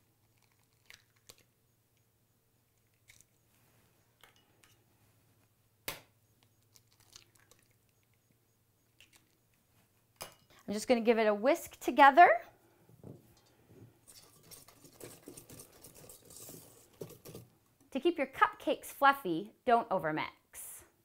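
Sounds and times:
eggs cracking on a metal bowl: 0.3 - 1.5, 5.9 - 8.2.

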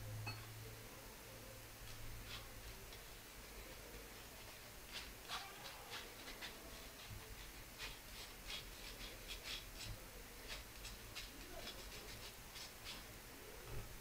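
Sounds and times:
spoon scratching metal sieve: 4.9 - 13.1.

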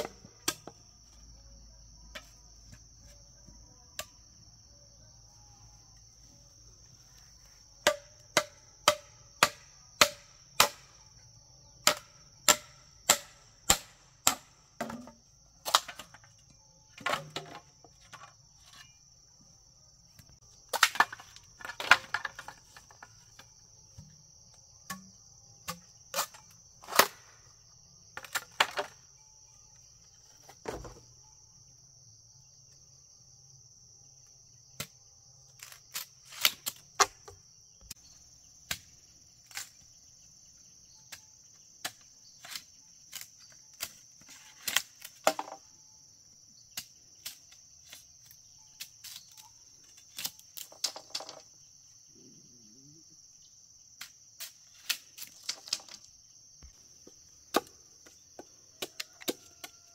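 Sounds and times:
high insect chirring: 17.7 - 59.9.

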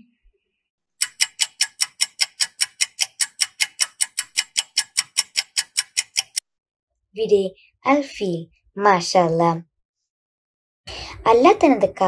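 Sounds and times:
rapid clock ticks: 1.0 - 6.4.

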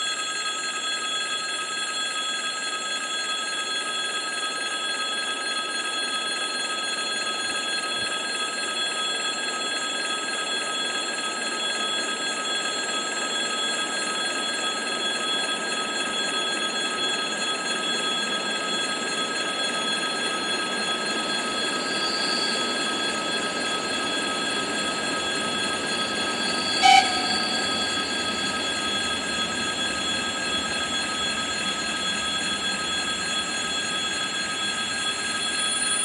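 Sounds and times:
crossing warning bell ringing: 18.2 - 36.0
train rumble: 25.5 - 32.5.

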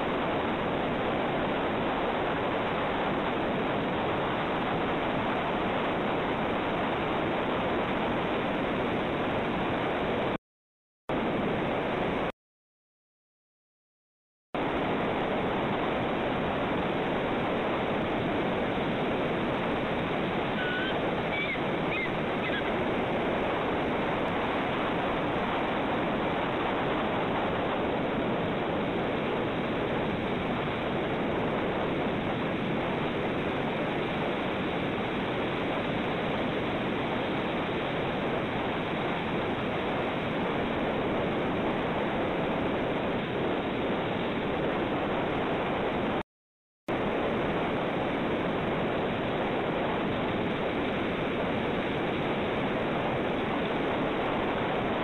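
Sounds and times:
ocean surf rushing: 14.6 - 46.2, 46.9 - 55.0.

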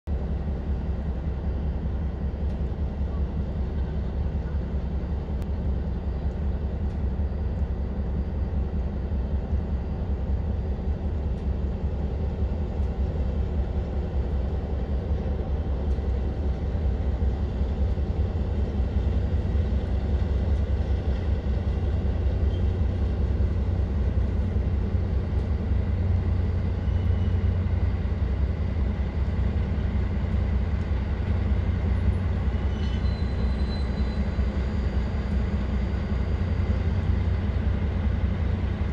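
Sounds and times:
diesel locomotive engine rumbling: 0.0 - 38.9
passenger train rolling: 0.1 - 38.9
high brake squeals: 32.5 - 35.1.

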